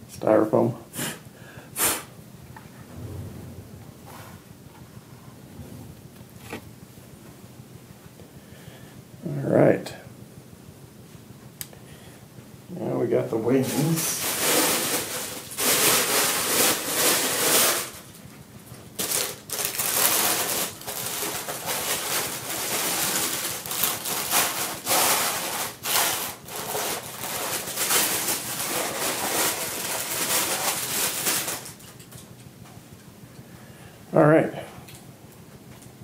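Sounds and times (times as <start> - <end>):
styrofoam rustling and scraping: 13.5 - 18.1, 19.0 - 31.8.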